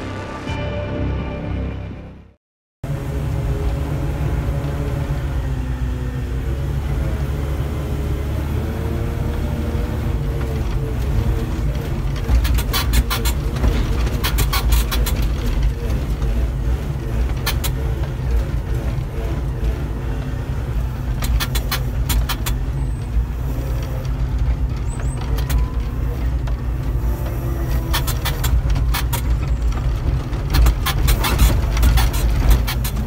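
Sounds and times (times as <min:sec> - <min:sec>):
diesel engine deep rumble: 0:02.8 - 0:33.0
rattles and clanks: 0:10.1 - 0:33.0.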